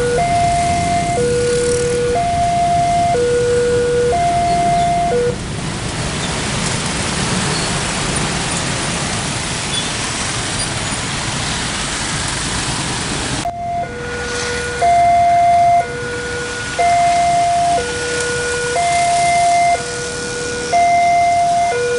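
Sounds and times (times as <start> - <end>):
level crossing alarm two-tone: 0.0 - 5.4, 13.5 - 14.1, 14.8 - 17.9, 18.7 - 20.0, 20.7 - 21.9
motorbikes and cars passing: 0.0 - 21.8.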